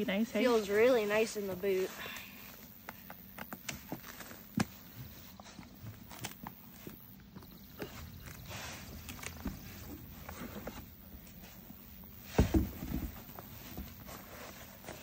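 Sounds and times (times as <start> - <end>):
boot buckles clicking and rustling: 2.1 - 15.0
boot thudding on wooden deck: 12.2 - 14.0.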